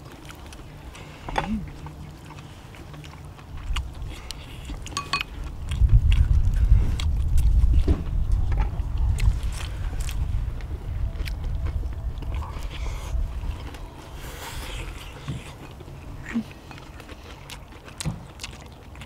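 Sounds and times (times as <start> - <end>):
chewing and lip-smacking: 0.0 - 19.0
low rumble: 5.2 - 16.8.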